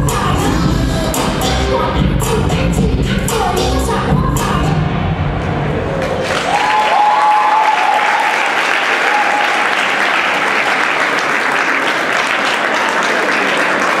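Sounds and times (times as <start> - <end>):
audience applauding: 6.2 - 14.0.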